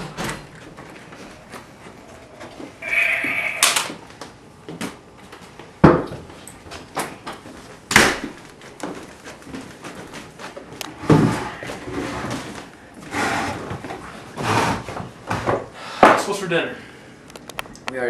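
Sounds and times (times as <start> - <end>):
door creaking: 2.8 - 4.0.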